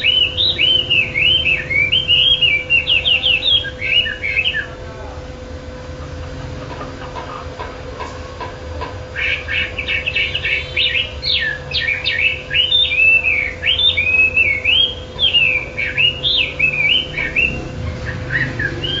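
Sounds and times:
songbird whistling song: 0.0 - 4.8, 9.1 - 19.0.

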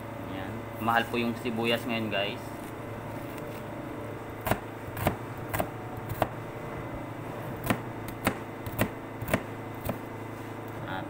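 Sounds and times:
knife chopping onion: 4.4 - 6.4, 7.6 - 10.1.

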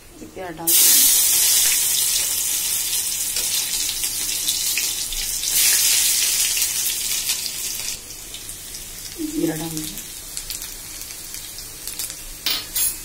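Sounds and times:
onion sizzling in hot oil: 0.6 - 13.0.

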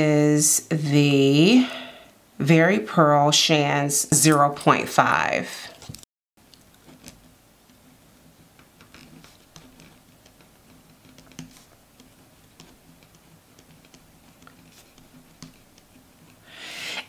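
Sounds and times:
pen scratching on paper: 8.5 - 16.4.

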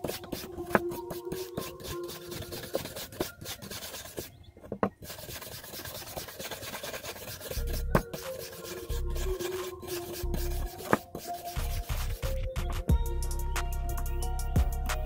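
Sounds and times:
stick scraping knife blade: 0.0 - 4.3, 5.0 - 12.4.

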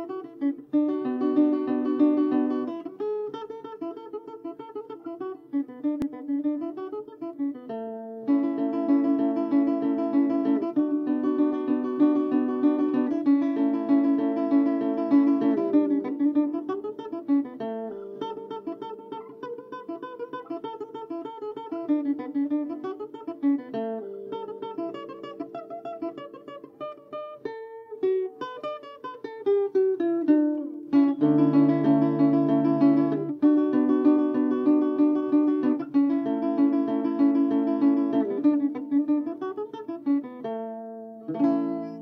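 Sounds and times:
picked guitar notes: 0.0 - 42.0
acoustic guitar strummed chords: 30.2 - 40.2.

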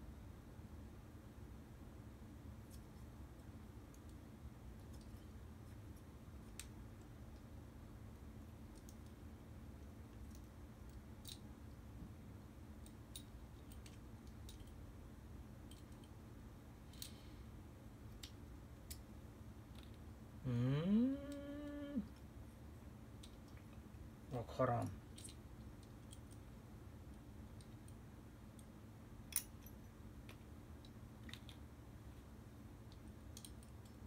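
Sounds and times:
low steady hum: 0.0 - 34.0
small parts clicking and tapping: 2.6 - 12.0, 12.7 - 14.9, 15.6 - 16.2, 16.8 - 17.4, 18.0 - 20.1, 23.1 - 24.0, 25.0 - 32.2, 32.8 - 34.0
man humming: 20.4 - 22.1.

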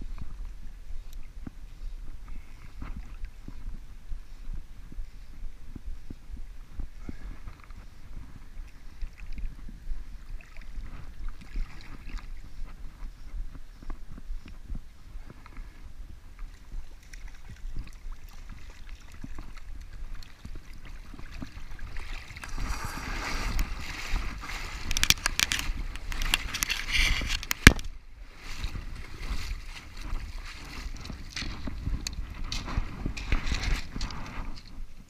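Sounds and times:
wind buffeting microphone: 0.0 - 35.0
water splashing on stony shore: 16.4 - 34.0.

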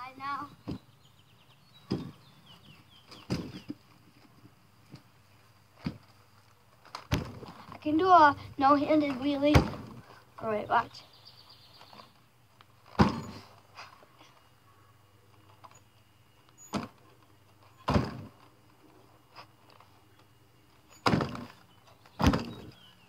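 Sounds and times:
wheelchair thudding on concrete: 1.8 - 2.3, 3.0 - 3.8, 5.8 - 6.1, 6.8 - 8.0, 8.9 - 10.1, 12.8 - 13.6, 16.6 - 17.0, 17.7 - 18.5, 20.9 - 22.9.

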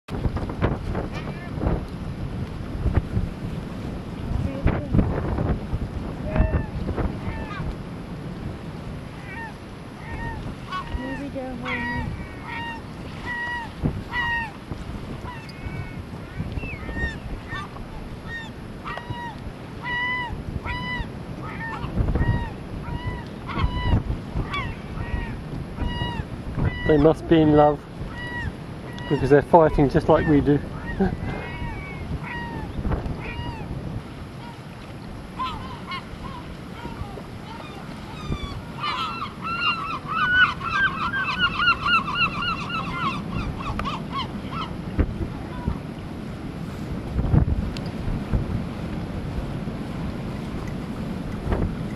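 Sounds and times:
low wind noise: 0.0 - 51.9
gulls calling harshly: 6.0 - 7.7, 9.0 - 46.0.

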